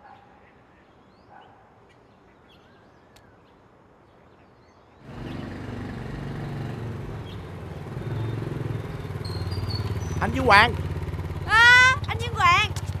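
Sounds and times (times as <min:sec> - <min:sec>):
bird chirps: 0:00.0 - 0:11.1
motorbike engine running: 0:05.1 - 0:13.0.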